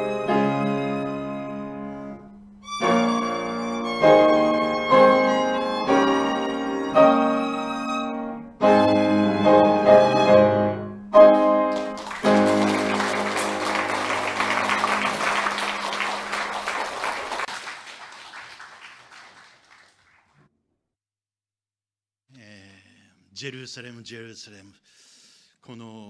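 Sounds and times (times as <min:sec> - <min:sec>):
violin with piano: 0:00.0 - 0:14.8
audience applauding: 0:11.4 - 0:20.4.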